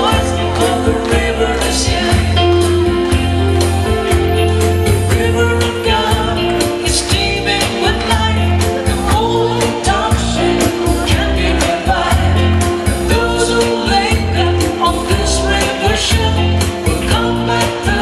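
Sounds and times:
worship song singing: 0.0 - 18.0.

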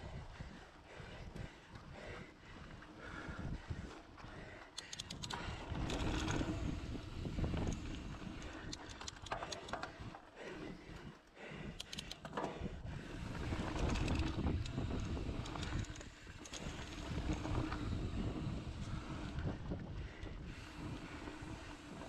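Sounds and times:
bike rattling clicks: 4.6 - 10.2, 11.6 - 22.0
wind on microphone: 5.1 - 8.7, 12.5 - 22.0
bike tyres rumbling on dirt: 5.4 - 8.7, 13.0 - 22.0.

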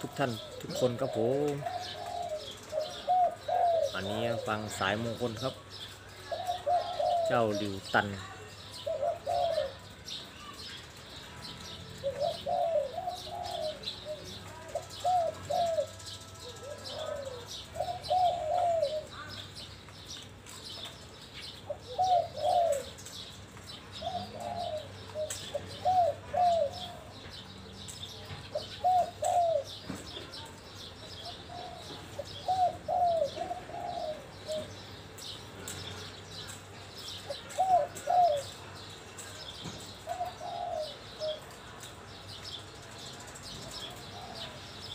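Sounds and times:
dove cooing: 0.0 - 10.6, 11.5 - 19.7, 21.4 - 41.8, 42.9 - 44.9
small birds chirping: 0.0 - 44.9.

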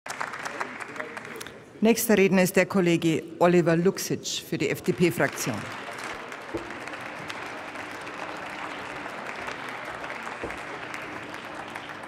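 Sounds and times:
crowd applauding: 0.0 - 1.6, 4.9 - 12.0.

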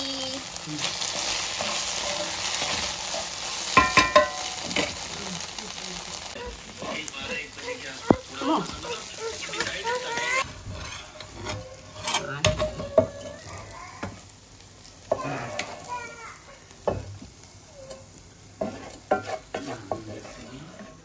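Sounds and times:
food sizzling in a pan: 0.0 - 21.0
metal spatula scraping a wok: 0.8 - 5.1, 8.0 - 13.7, 17.8 - 21.0.

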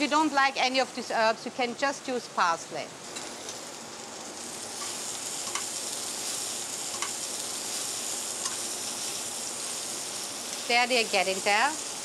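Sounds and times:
vegetables sizzling in oil: 0.0 - 12.0
tongs tossing vegetables: 4.8 - 12.0.

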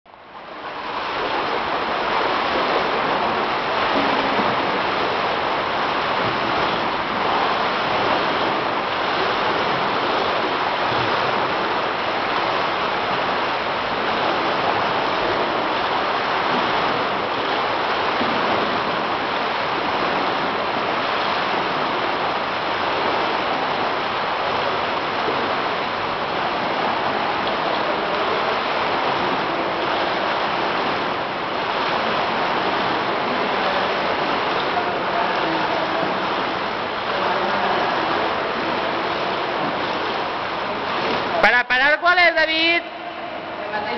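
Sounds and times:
swimmers splashing water: 0.2 - 43.9.

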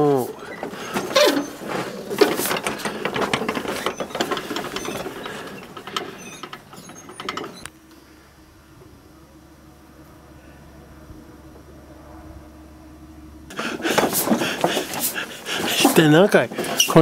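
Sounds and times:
prayer wheels clicking and rattling: 0.0 - 7.8, 13.5 - 17.0.

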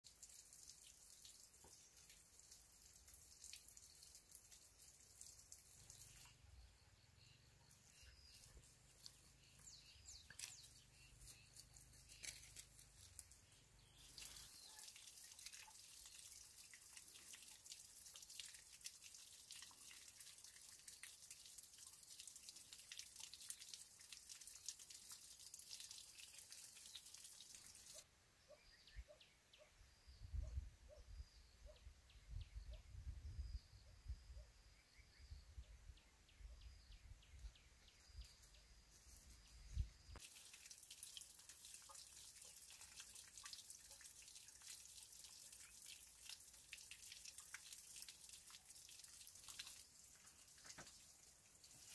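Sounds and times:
drips and ticks: 0.0 - 28.0, 40.1 - 51.9.

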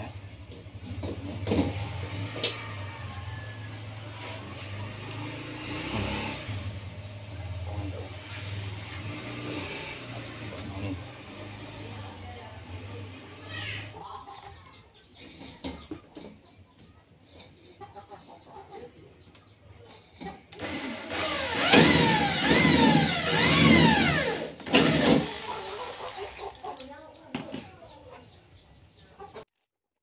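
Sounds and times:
electric drill motor whine: 20.6 - 26.1.

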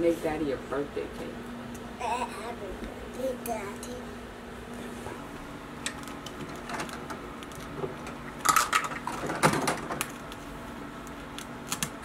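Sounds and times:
plastic clicks and crackles: 5.8 - 10.4.

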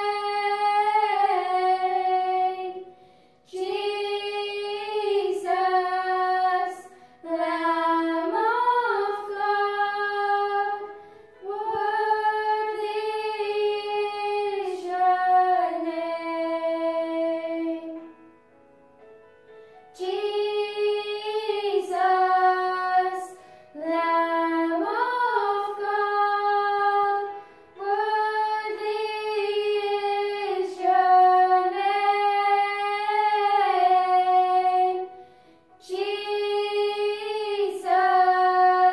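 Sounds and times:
girls singing unaccompanied: 0.0 - 18.1, 20.0 - 35.2, 35.8 - 38.9.

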